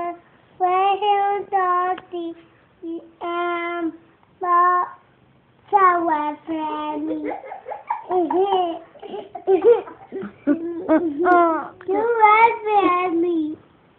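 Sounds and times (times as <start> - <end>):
child singing la-la tune: 0.0 - 7.5, 11.5 - 13.6
child giggling: 7.0 - 11.8.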